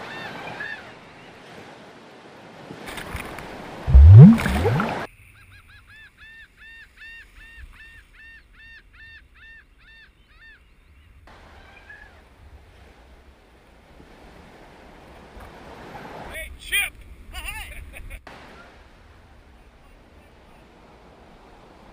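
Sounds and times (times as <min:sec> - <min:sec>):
surf: 0:02.7 - 0:05.1
noisy upward sweeping burst: 0:03.9 - 0:05.1.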